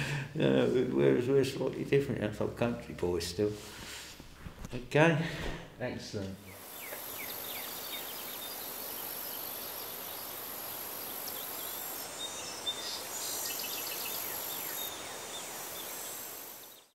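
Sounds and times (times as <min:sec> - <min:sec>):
steady hiss: 0:00.0 - 0:16.9
small birds chirping: 0:06.4 - 0:16.9.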